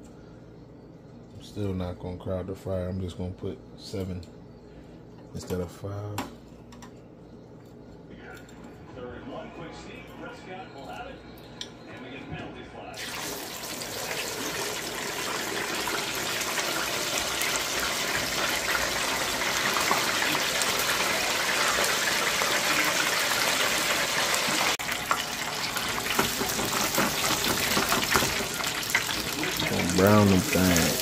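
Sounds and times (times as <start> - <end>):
oil sizzling and bubbling in fryer: 13.0 - 31.0.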